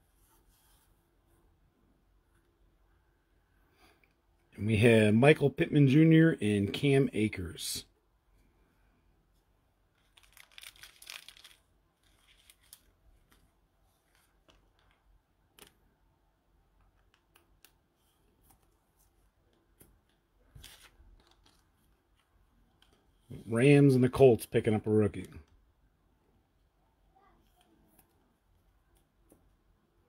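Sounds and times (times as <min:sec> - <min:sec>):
trading cards rustling and sliding: 0:10.0 - 0:15.8, 0:17.0 - 0:23.5.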